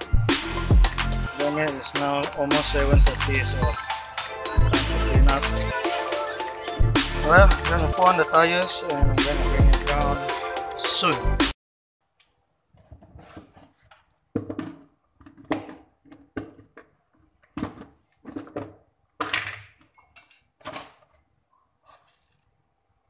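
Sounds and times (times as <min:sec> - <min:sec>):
objects handled and set down: 0:12.7 - 0:21.2.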